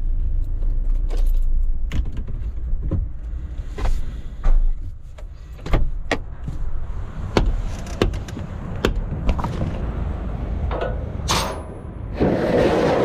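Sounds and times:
clicks and knocks of controls: 10.6s - 11.8s.

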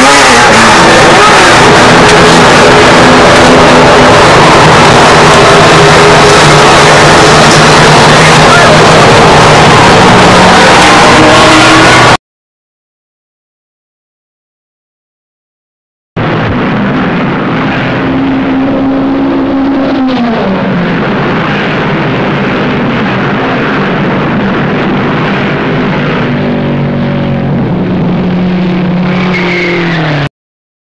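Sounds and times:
stock car engine running: 0.0s - 12.2s.

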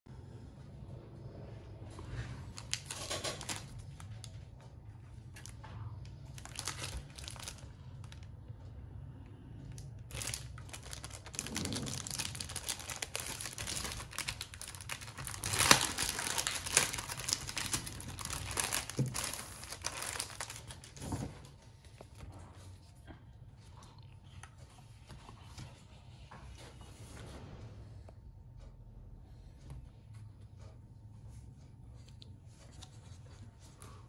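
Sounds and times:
plastic packaging crinkling and tearing: 2.5s - 4.4s, 5.2s - 8.3s, 9.7s - 21.4s.

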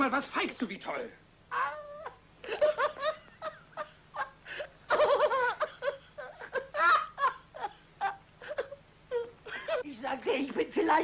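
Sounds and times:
man laughing: 1.6s - 9.8s
man giggling: 2.4s - 9.8s.

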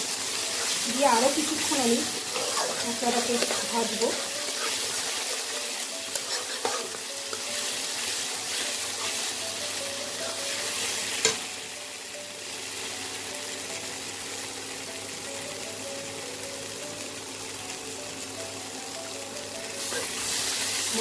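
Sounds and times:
spices sizzling in oil: 0.0s - 21.0s
spatula stirring and scraping: 0.1s - 9.4s, 19.8s - 20.3s.

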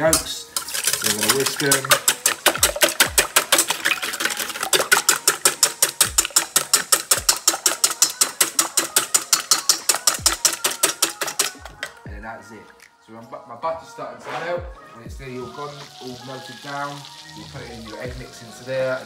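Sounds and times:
whisk clicking against metal bowl: 0.0s - 12.0s.

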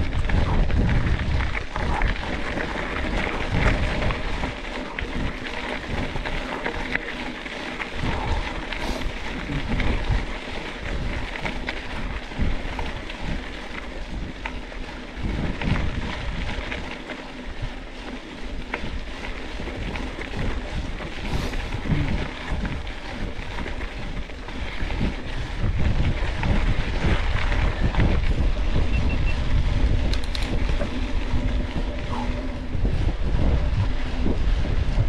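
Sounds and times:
mountain bike rumbling and rattling: 0.0s - 35.0s
wind buffeting microphone: 0.0s - 35.0s.

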